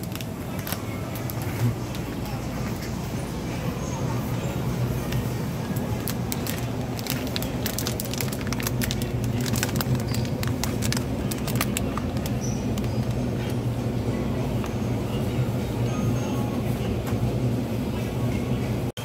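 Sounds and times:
plastic packaging crinkling: 0:00.0 - 0:02.2, 0:05.6 - 0:13.3
steady low hum: 0:00.0 - 0:19.0.

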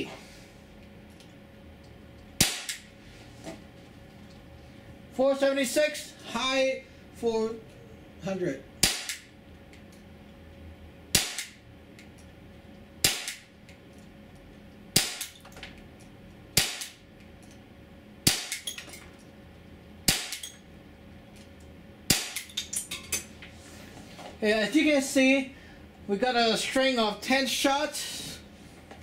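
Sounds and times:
air pistol shots: 0:02.4 - 0:02.9, 0:08.8 - 0:09.3, 0:11.1 - 0:11.6, 0:13.0 - 0:13.5, 0:15.0 - 0:15.3, 0:16.6 - 0:17.0, 0:18.3 - 0:18.6, 0:20.1 - 0:20.4, 0:22.1 - 0:22.5.

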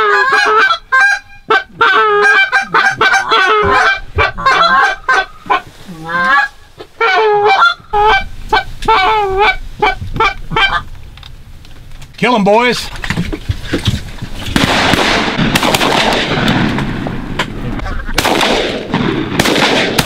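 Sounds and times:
goose calls honking: 0:00.0 - 0:10.9.

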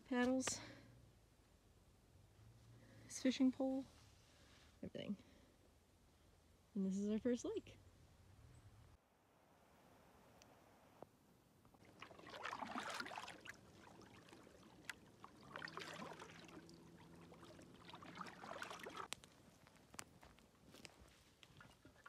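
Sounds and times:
water dripping off paddle blades: 0:11.7 - 0:19.3
canoe paddle strokes in water: 0:11.8 - 0:19.1.

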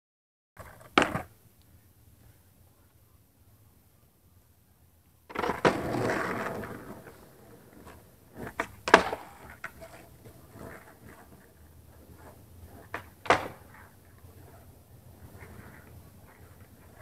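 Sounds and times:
skateboard clacking on pavement: 0:00.6 - 0:01.3, 0:05.3 - 0:17.0
skateboard wheels rolling: 0:00.6 - 0:01.6, 0:05.1 - 0:17.0.

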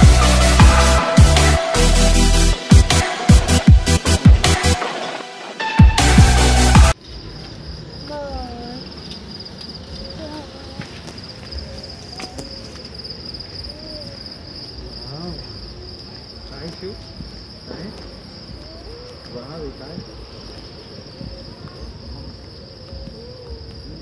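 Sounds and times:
crickets chirping: 0:00.0 - 0:24.0
faint voices: 0:10.0 - 0:24.0.

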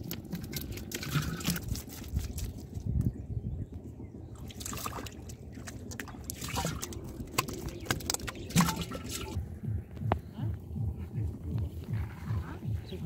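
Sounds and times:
fish thrashing in shallow water: 0:00.0 - 0:02.8, 0:04.4 - 0:09.4.

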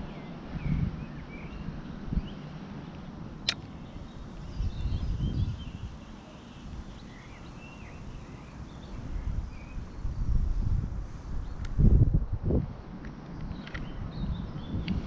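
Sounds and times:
wind gusts rumbling: 0:00.0 - 0:02.6, 0:08.9 - 0:15.0
birds chirping: 0:00.0 - 0:10.1, 0:13.3 - 0:15.0
sharp click: 0:03.4 - 0:03.7.

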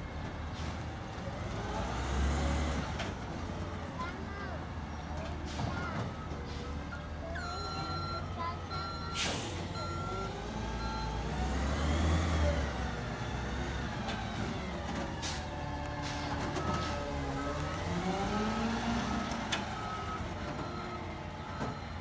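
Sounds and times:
garbage truck engine revving: 0:00.0 - 0:22.0
reversing beeper: 0:06.9 - 0:11.8, 0:16.0 - 0:22.0
air brake hisses: 0:09.2 - 0:09.7.

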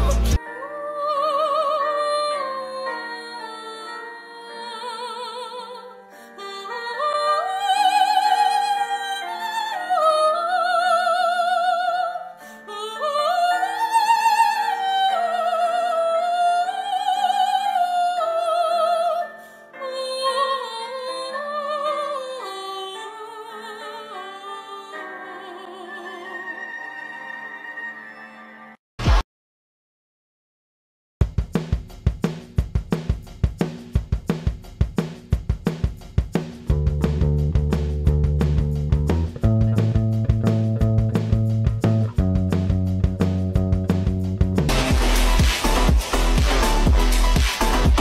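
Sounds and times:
operatic singing: 0:00.0 - 0:01.9.

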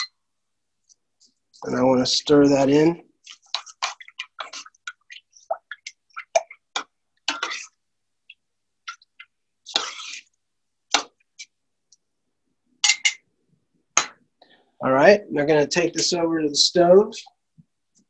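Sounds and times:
utensil scraping a pot: 0:03.3 - 0:07.8, 0:08.9 - 0:10.4.

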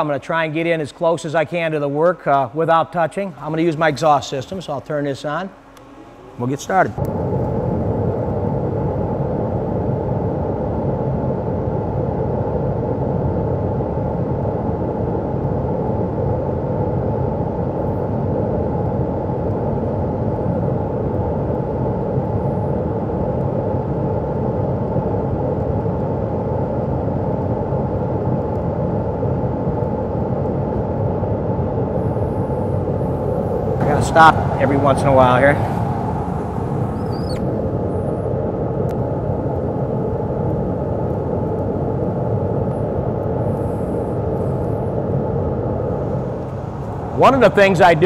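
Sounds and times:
fume extractor blower rushing air: 0:00.0 - 0:26.4, 0:27.2 - 0:48.0.

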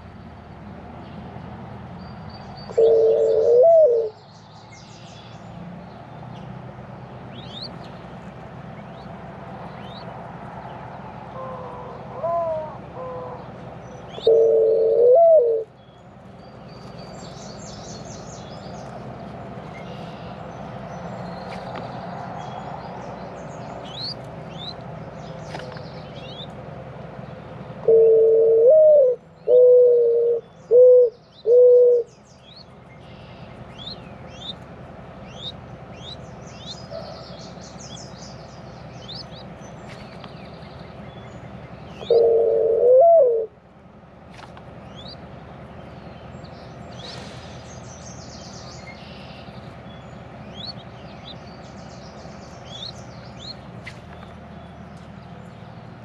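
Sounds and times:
small songbirds chirping: 0:00.0 - 0:28.1, 0:30.2 - 0:42.6, 0:43.6 - 0:56.0
dove cooing: 0:02.7 - 0:04.2, 0:11.3 - 0:13.5, 0:14.1 - 0:15.7, 0:27.8 - 0:32.1, 0:42.0 - 0:43.6.

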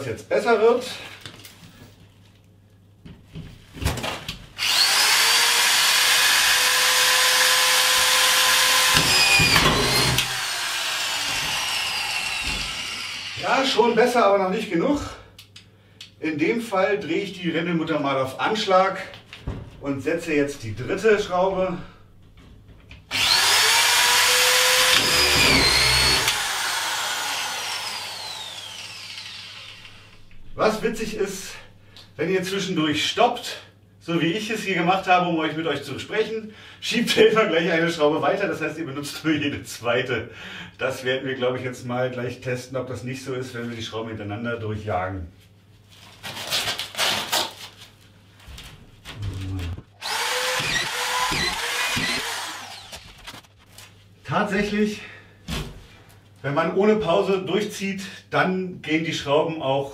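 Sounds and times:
drywall screwdriver whining: 0:04.6 - 0:13.9, 0:23.1 - 0:30.3, 0:49.5 - 0:53.4
screw grinding into panel: 0:04.8 - 0:13.4, 0:23.1 - 0:30.2, 0:50.0 - 0:53.2.

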